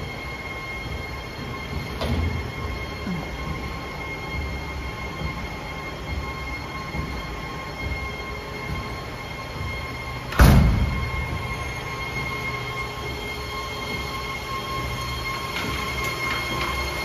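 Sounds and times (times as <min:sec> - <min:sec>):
machine hum with whine: 0:00.0 - 0:17.0
loud thump: 0:10.3 - 0:11.0.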